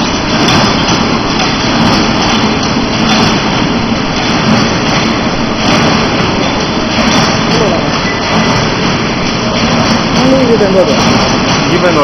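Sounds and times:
welding machine running: 0.0s - 12.0s.

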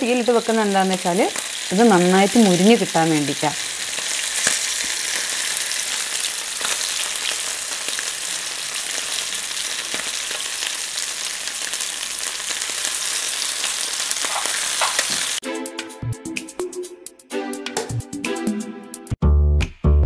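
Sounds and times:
fish sizzling in oil: 0.0s - 15.4s.

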